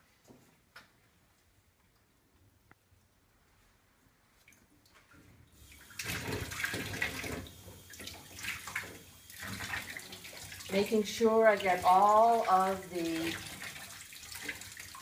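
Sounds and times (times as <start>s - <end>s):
tap water splashing into sink: 5.6s - 15.0s.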